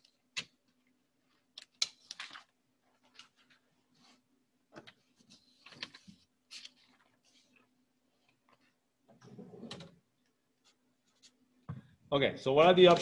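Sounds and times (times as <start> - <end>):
paper rustling and tapping: 1.6 - 3.6, 4.7 - 7.6.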